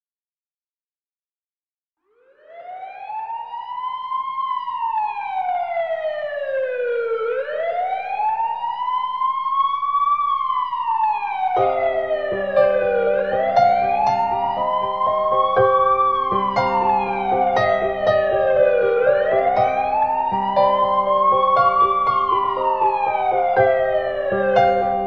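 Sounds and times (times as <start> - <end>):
emergency siren wailing: 2.0 - 25.0
music with held notes: 11.6 - 25.0.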